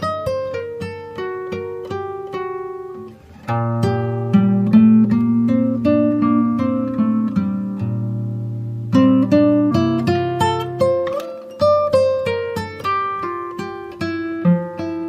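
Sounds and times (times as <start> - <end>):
plucked acoustic guitar music: 0.0 - 15.0.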